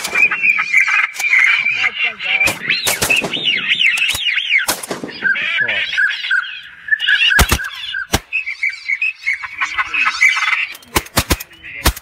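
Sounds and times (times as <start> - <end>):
ducks calling: 0.0 - 12.0
shotgun shots: 2.4 - 5.3, 7.4 - 8.3, 10.9 - 12.0.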